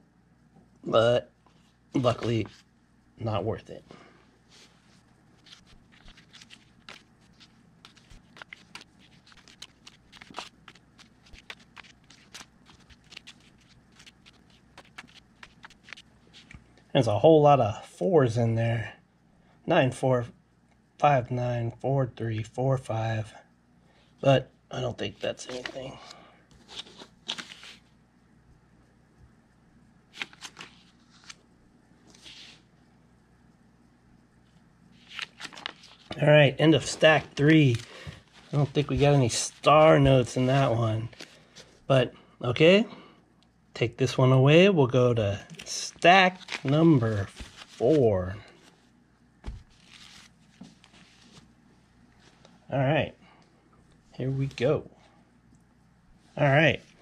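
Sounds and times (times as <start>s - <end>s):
paper bills rustling: 2.0s - 2.7s, 4.5s - 16.6s, 25.1s - 28.0s, 30.1s - 32.7s, 35.0s - 41.8s, 45.5s - 51.5s
banknotes snapping: 5.4s - 16.6s.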